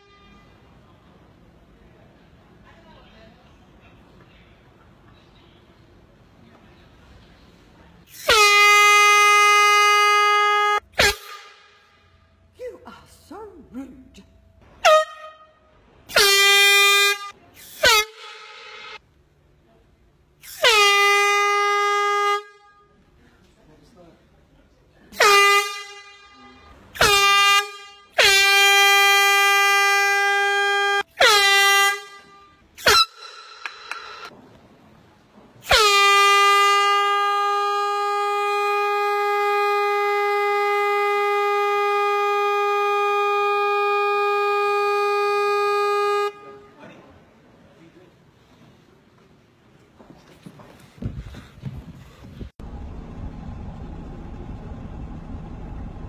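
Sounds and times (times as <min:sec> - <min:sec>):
air horn blasts: 0:00.0 - 0:00.7, 0:08.1 - 0:12.3, 0:14.8 - 0:19.0, 0:20.4 - 0:23.1, 0:25.2 - 0:34.3, 0:35.6 - 0:46.8.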